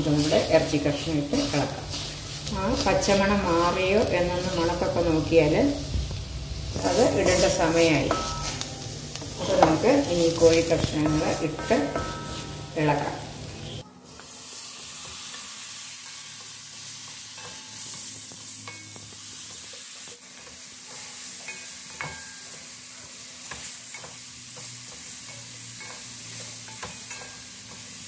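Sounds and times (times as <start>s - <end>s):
spatula scraping a pan: 0.0s - 4.9s
chicken sizzling in hot oil: 0.0s - 28.0s.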